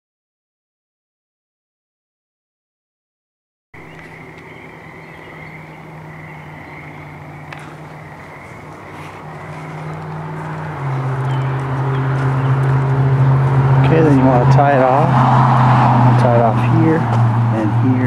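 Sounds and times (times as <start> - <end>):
vehicle engine hum: 3.8 - 18.0.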